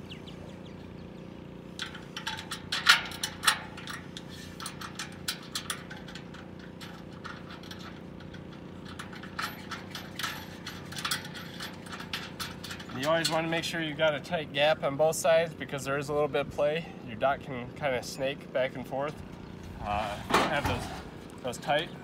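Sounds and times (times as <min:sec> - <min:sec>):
low hum: 0:00.0 - 0:17.0
metal bolts clicking: 0:01.7 - 0:14.2.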